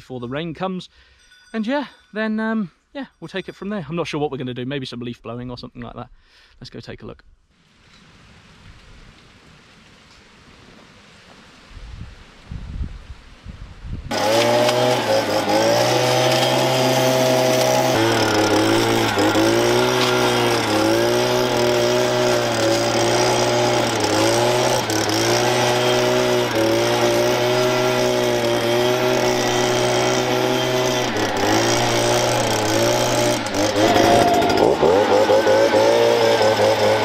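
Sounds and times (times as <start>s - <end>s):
leaf blower engine surging: 14.1s - 37.0s.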